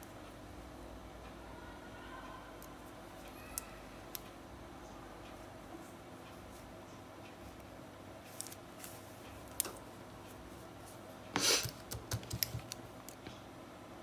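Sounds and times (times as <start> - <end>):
rustle of handling: 8.2 - 11.5.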